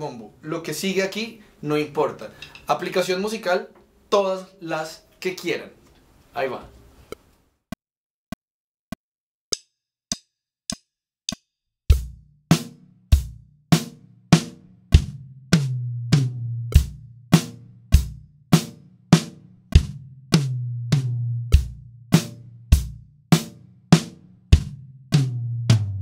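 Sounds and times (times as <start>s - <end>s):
drum kit playing rock beat: 11.9s - 26.0s.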